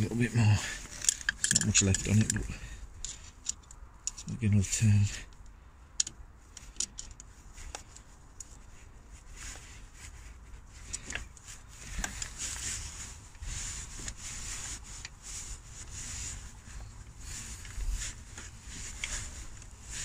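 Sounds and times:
hand and sleeve rustling: 0.0s - 4.4s, 6.4s - 20.0s
small metal clicks: 0.9s - 4.3s.

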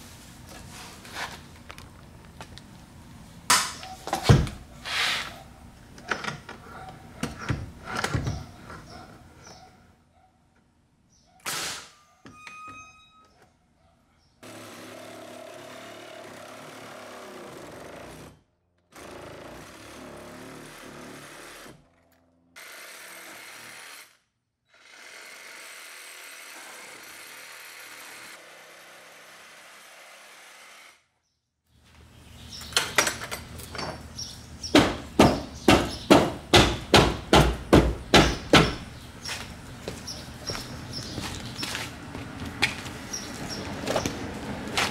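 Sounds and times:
nail gun firing: 11.4s - 11.9s.

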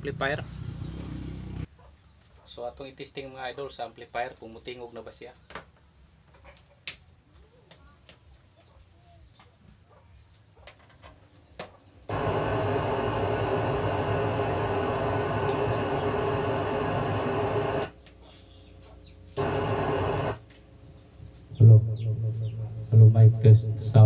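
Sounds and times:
loudspeaker buzzing hiss: 12.1s - 17.9s, 19.4s - 20.4s.

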